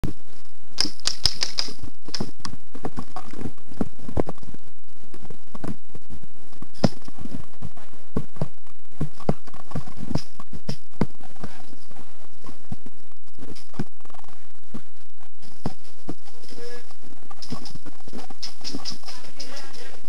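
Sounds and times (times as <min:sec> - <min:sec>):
footsteps: 0:14.7 - 0:20.0.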